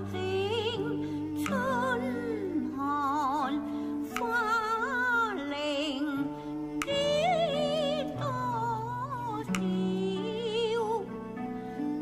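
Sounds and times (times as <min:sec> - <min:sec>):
woman singing with vibrato: 0:00.0 - 0:11.2.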